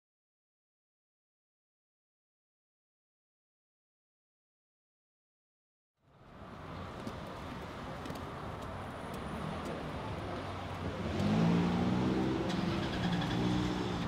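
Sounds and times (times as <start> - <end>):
passing cars: 6.1 - 14.0
louder vehicle engine passing: 9.4 - 14.0.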